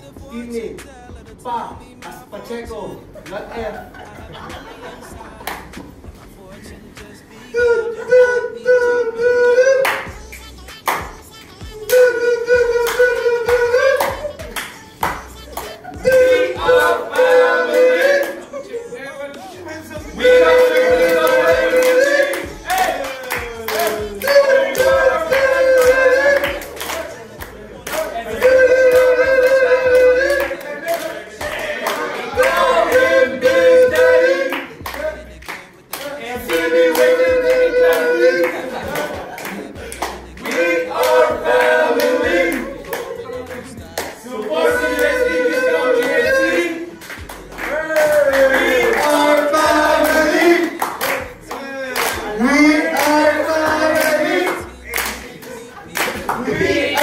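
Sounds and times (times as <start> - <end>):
men singing a chant: 0.0 - 10.4, 11.0 - 57.0
hand-clapping: 5.4 - 6.0, 9.7 - 18.5, 20.5 - 45.3, 46.0 - 57.0.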